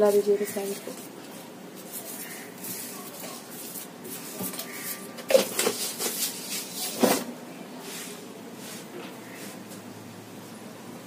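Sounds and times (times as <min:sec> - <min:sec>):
spoon scraping bread on pan: 0:01.8 - 0:07.0.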